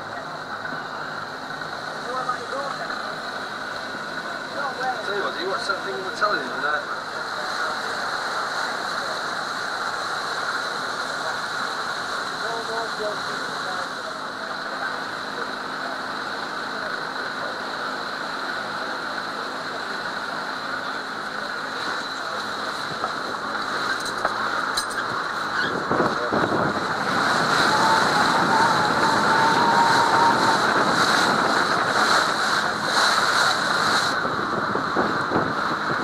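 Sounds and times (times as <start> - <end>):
choppy water splashing: 0.0 - 36.0
wind on microphone: 25.0 - 36.0.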